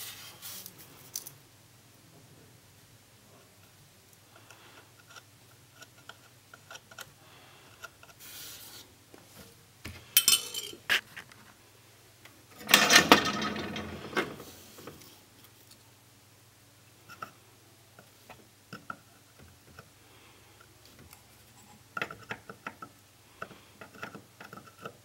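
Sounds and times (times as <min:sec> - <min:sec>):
tools clattering on workbench: 0:10.2 - 0:10.9, 0:12.6 - 0:15.0.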